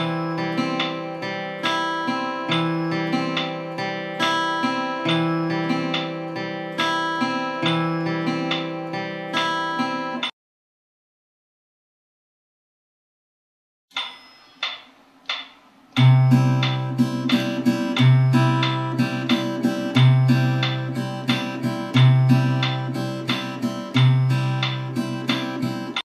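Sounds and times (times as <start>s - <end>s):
acoustic guitar fingerpicked: 0.0s - 10.3s, 16.0s - 26.0s.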